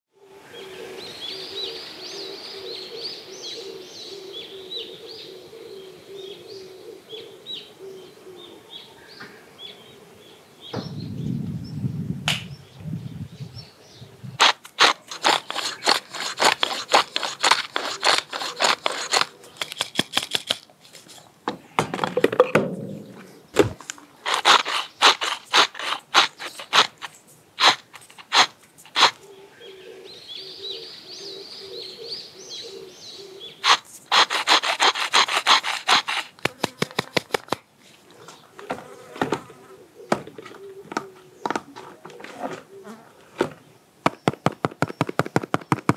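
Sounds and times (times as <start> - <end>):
low thump: 10.7 - 11.1, 21.8 - 23.8
pepper mill grinding: 14.4 - 20.7, 24.2 - 29.2, 33.6 - 37.6
insect buzzing: 33.6 - 37.5.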